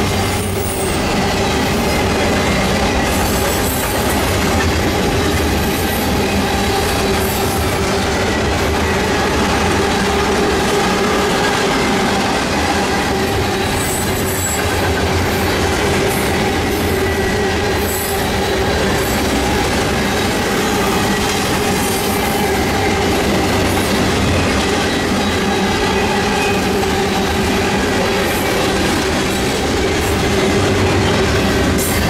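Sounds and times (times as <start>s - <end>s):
steel wheels running over rails: 0.0s - 32.0s
high-pitched wheel squeal: 10.9s - 29.6s.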